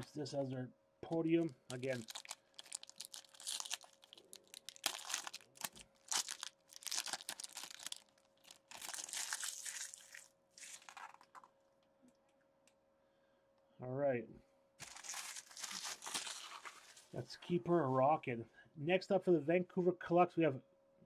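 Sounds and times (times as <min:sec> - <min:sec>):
foil pack crinkling and tearing: 0:01.1 - 0:11.5, 0:14.8 - 0:17.1.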